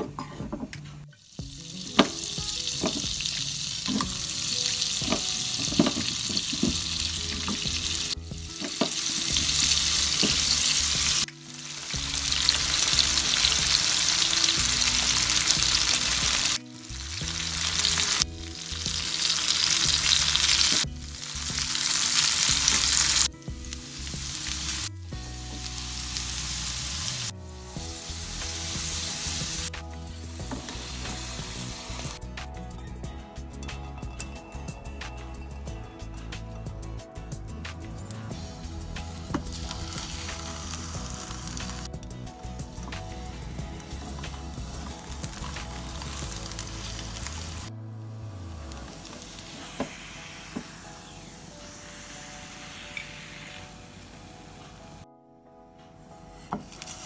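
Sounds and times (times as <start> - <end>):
faint background music: 0.0 - 57.0
potato wedges sizzling in a pan: 1.2 - 32.2, 38.5 - 41.9, 43.0 - 47.7, 56.6 - 57.0.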